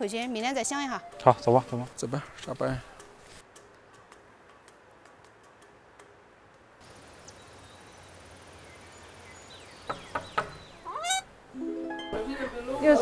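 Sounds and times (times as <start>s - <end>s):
sharp knocks: 9.9s - 10.7s.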